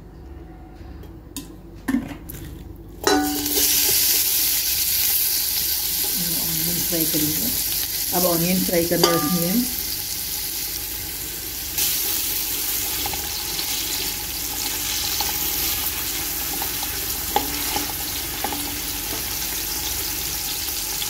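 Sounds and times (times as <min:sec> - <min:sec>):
onions sizzling in oil: 0:03.0 - 0:21.0
spatula stirring and tapping: 0:16.4 - 0:19.3.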